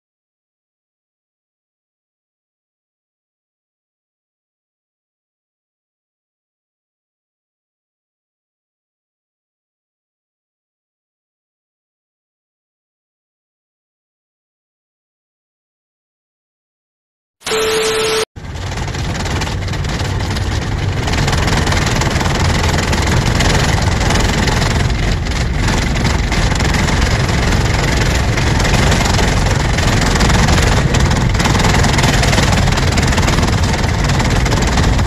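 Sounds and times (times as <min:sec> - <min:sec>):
engine and road noise in cab: 0:17.4 - 0:35.0.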